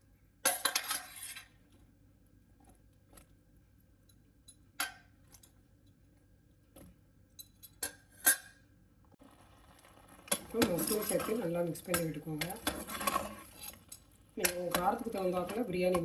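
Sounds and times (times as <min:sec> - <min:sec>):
spoon clinking on metal pot: 0:10.3 - 0:13.4, 0:14.4 - 0:16.0.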